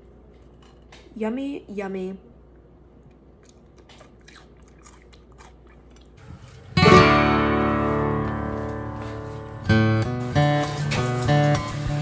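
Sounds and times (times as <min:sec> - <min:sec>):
person chewing: 0:03.0 - 0:06.3
acoustic guitar strums: 0:06.8 - 0:12.0.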